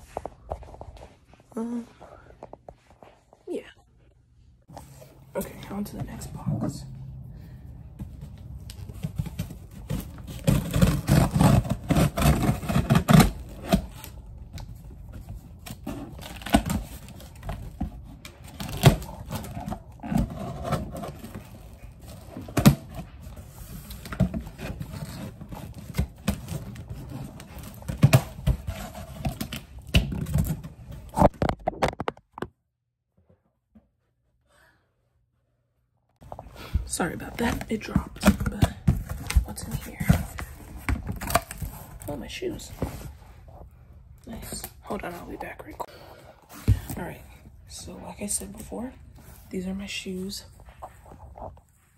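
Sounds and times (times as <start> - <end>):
cardboard box scraping and rustling: 15.3 - 29.4.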